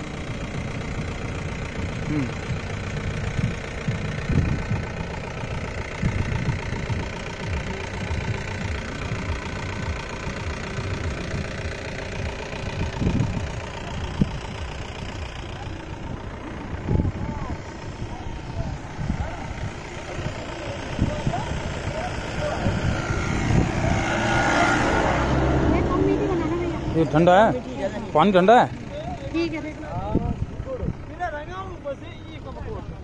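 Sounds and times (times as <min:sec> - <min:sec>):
steady engine hum: 0:00.0 - 0:33.0
wind buffeting microphone: 0:02.6 - 0:10.0, 0:12.2 - 0:14.8, 0:16.2 - 0:26.9.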